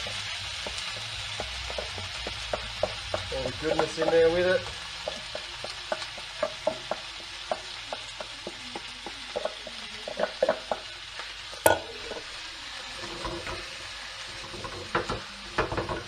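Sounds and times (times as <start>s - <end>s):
food sizzling in a frying pan: 0.0s - 16.0s.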